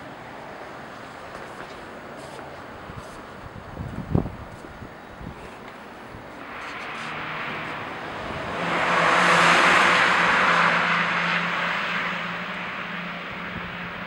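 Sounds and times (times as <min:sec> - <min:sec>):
car passing by: 0:06.2 - 0:14.0.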